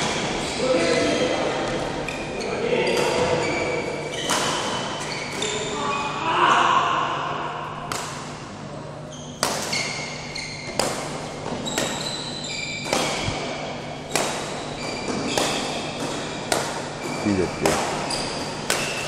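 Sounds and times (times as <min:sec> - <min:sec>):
shoes squeaking on court: 0:02.0 - 0:06.2, 0:09.0 - 0:16.4, 0:17.0 - 0:19.0
racquet striking shuttlecock: 0:09.4 - 0:09.9, 0:10.7 - 0:19.0.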